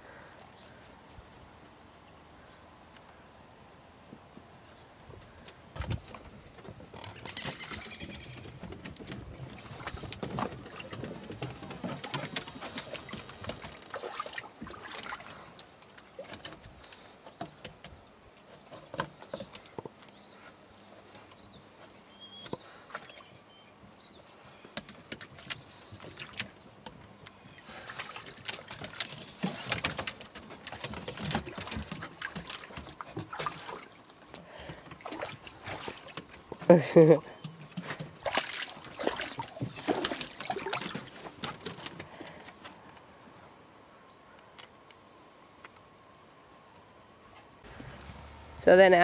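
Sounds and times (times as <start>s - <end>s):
water splashing in hot tub: 9.6s - 16.5s, 27.5s - 41.7s.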